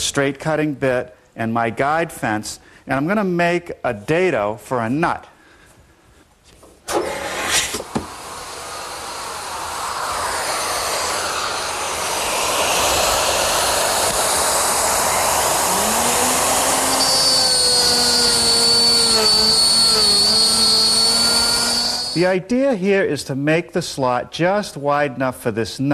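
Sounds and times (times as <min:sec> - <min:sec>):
router cutting wood whine: 0:06.9 - 0:22.2
dust blower rushing: 0:06.9 - 0:22.3.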